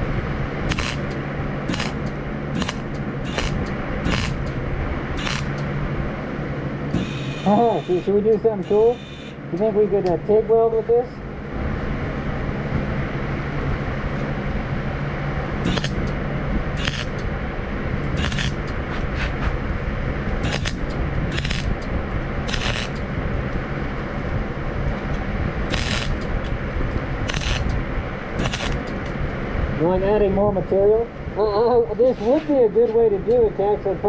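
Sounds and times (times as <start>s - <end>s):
welder humming: 0.0s - 5.7s, 6.9s - 9.6s, 15.6s - 19.7s, 20.3s - 23.6s, 25.0s - 29.1s
crackling welding arc: 0.7s - 4.6s, 5.2s - 5.6s, 6.9s - 9.4s, 15.6s - 16.1s, 16.8s - 17.2s, 18.2s - 19.5s, 20.4s - 23.1s, 25.6s - 26.5s, 27.2s - 27.8s, 28.4s - 29.0s.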